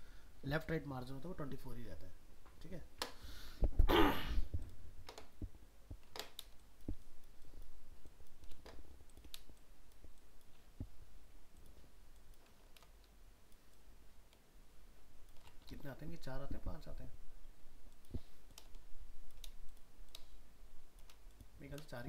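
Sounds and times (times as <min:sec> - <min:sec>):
mouse and keyboard clicks: 0:04.5 - 0:14.4, 0:15.2 - 0:16.2, 0:17.9 - 0:22.0.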